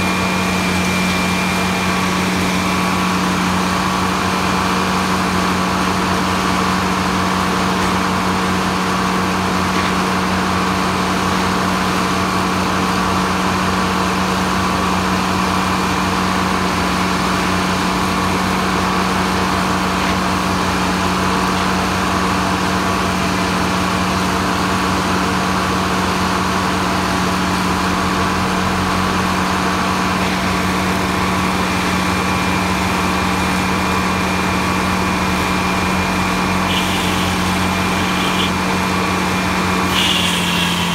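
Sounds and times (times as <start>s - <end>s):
circular sawmill humming: 27.7s - 40.9s.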